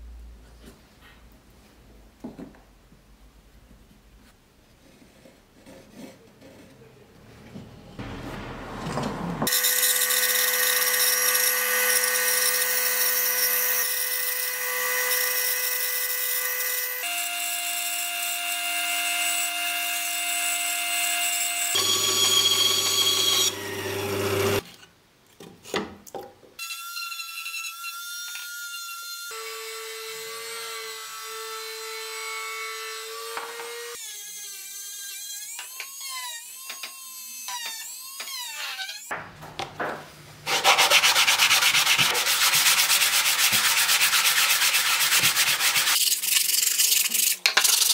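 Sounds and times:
bandsaw cutting plywood: 21.3 - 24.6, 40.5 - 46.3
power tool whine: 21.4 - 24.6
rotary tool sanding: 40.5 - 47.9.

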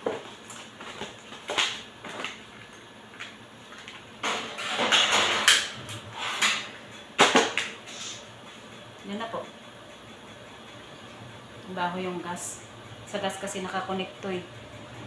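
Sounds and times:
dish scraping on metal rack: 4.2 - 6.8.

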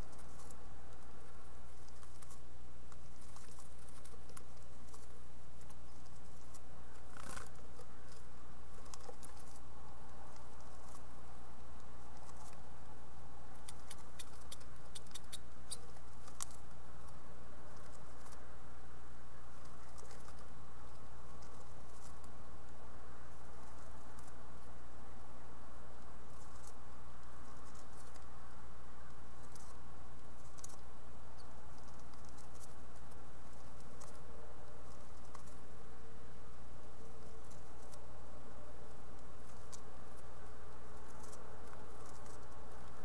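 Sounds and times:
claws scratching on wood: 0.0 - 11.2, 38.9 - 43.0
faint scratches of birds shifting: 0.0 - 43.0
steady low hum: 0.0 - 43.0.

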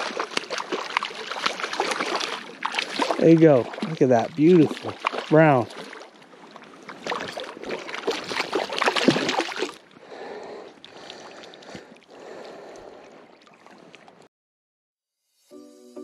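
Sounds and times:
fish splashing in water: 0.0 - 10.0
river water: 0.0 - 14.3.

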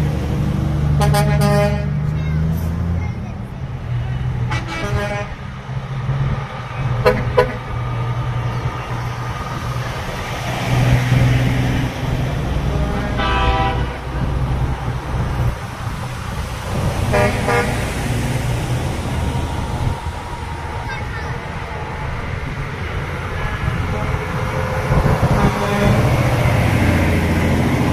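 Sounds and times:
truck engines rumbling: 0.0 - 27.9
truck horns tooting: 0.9 - 3.5, 4.3 - 5.6, 6.8 - 8.6, 12.6 - 14.6, 16.8 - 18.6, 23.0 - 26.9.

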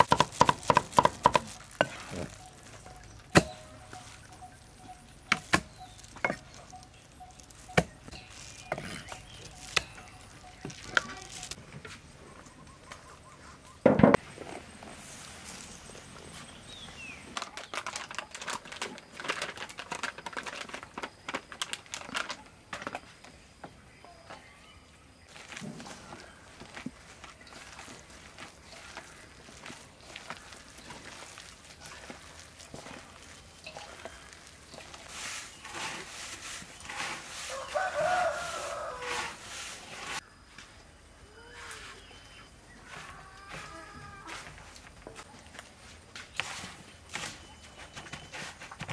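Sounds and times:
plastic bag crinkling: 0.0 - 3.1, 5.7 - 11.6, 16.7 - 23.0
chicken calling: 37.3 - 39.7.

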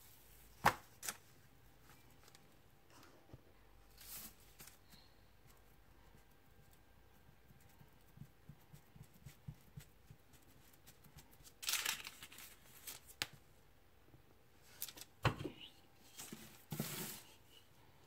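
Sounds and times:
baking paper rustling: 3.9 - 4.9, 9.0 - 13.4.

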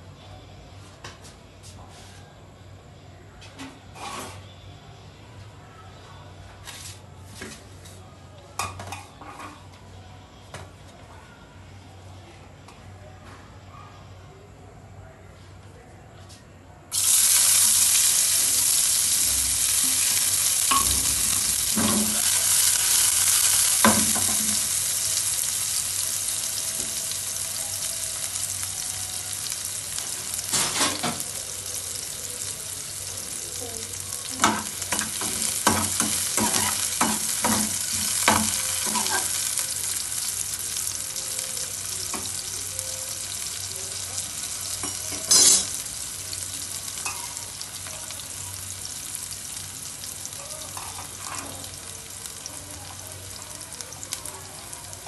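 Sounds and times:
onions sizzling in hot oil: 16.9 - 55.0
spoon clinking and scraping pan: 44.8 - 45.8.

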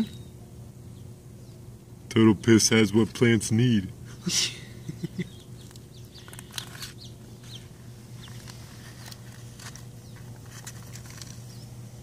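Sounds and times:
faint bird chirps: 0.0 - 1.7, 4.2 - 8.5
steady low hum: 0.0 - 12.0.

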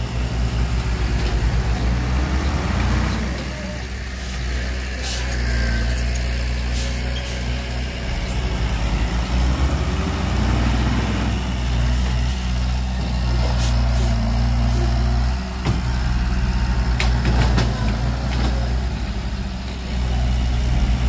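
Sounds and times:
heavy diesel engine running: 0.0 - 21.0.

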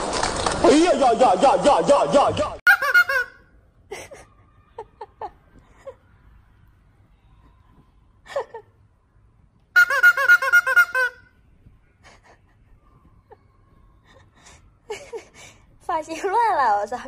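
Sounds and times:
rubber chicken toy squeaking: 2.7 - 3.4, 9.8 - 11.2.

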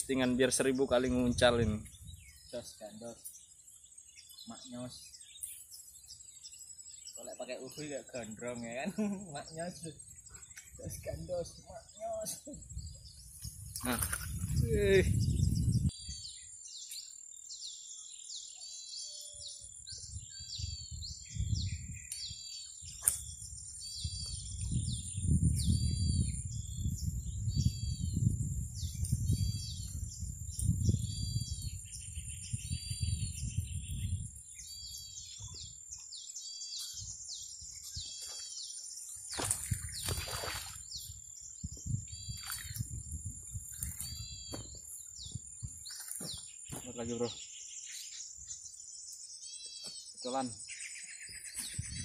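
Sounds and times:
wind on microphone: 0.9 - 2.5, 10.1 - 16.4, 19.8 - 36.0, 39.3 - 46.4, 51.3 - 52.0.

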